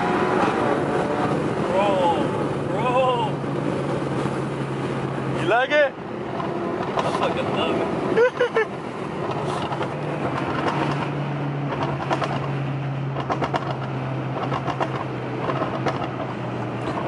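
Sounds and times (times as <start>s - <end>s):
car engine drone: 0.0s - 17.0s
exhaust pops and crackles: 6.3s - 7.7s, 9.2s - 17.0s.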